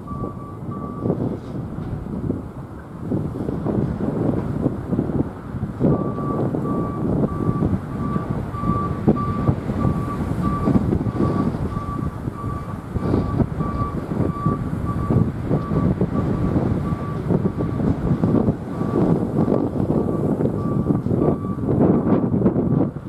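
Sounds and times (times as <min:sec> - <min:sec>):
freight train wheels rumbling: 0:00.0 - 0:23.0.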